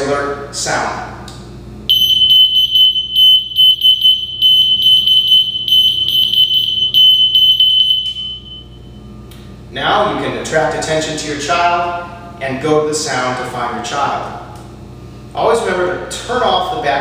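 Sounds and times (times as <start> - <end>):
high-pitched electronic alarm tone: 1.9 - 9.0.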